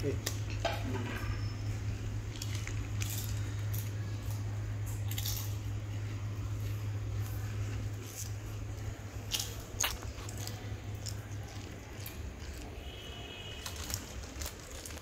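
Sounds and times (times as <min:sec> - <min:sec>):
steady low hum: 0:00.0 - 0:15.0
sharp crackles: 0:13.5 - 0:15.0.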